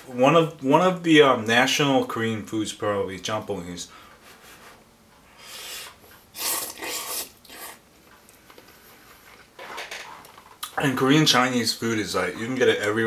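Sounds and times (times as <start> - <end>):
person slurping noodles: 5.4 - 7.8.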